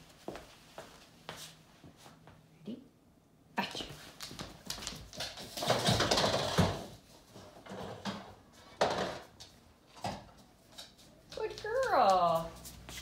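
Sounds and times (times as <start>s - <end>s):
dog claws clicking on wooden floor: 4.1s - 6.7s.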